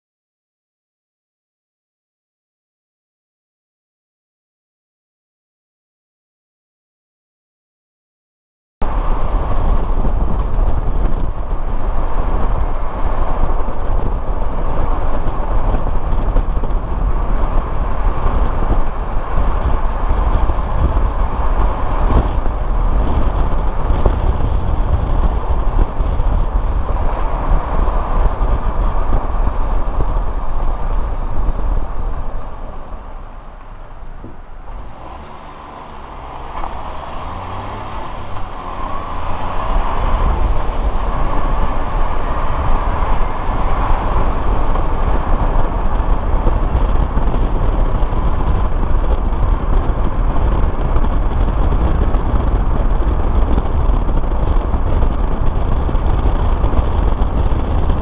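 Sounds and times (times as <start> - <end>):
car driving road and engine rumble: 8.8 - 58.0.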